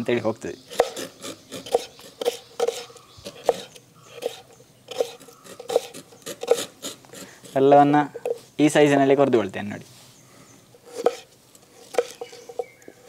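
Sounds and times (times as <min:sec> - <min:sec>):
knife cutting on a cutting board: 0:00.7 - 0:07.6, 0:10.8 - 0:11.3.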